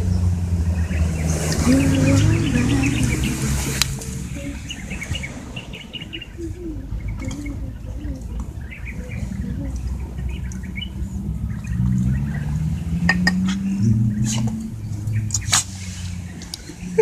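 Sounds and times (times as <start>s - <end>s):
birds chirping: 0.0s - 17.0s.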